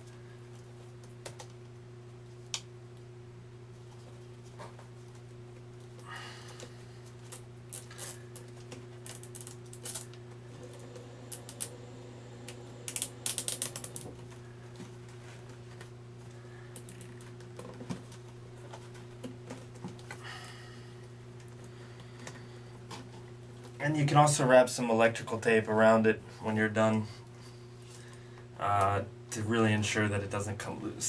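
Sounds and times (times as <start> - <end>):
steady low hum: 0.0 - 31.0
cable tie ratchet clicking: 12.5 - 14.1.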